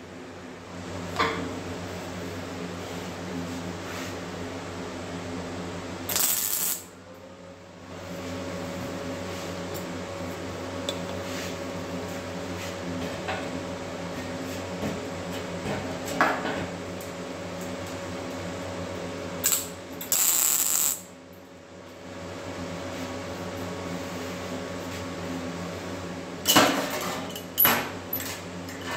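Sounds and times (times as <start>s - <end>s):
steady hum: 0.0s - 27.0s
welding crackling hiss: 6.1s - 6.9s, 19.4s - 21.1s.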